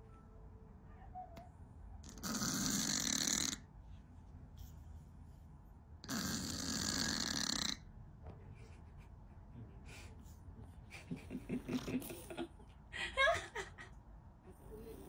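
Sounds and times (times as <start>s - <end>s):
cat snoring: 2.0s - 3.6s, 6.0s - 7.8s.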